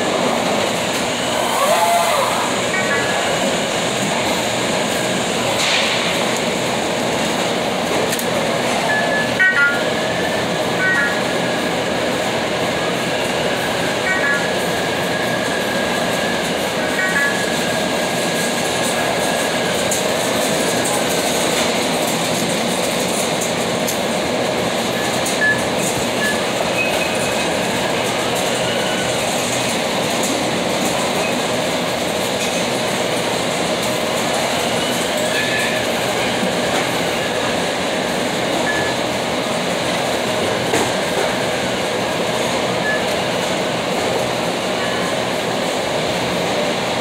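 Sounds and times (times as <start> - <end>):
loud mechanical rolling noise: 0.0 - 47.0
high-pitched tones: 8.9 - 9.9, 10.7 - 11.4, 14.0 - 14.6, 16.9 - 17.6.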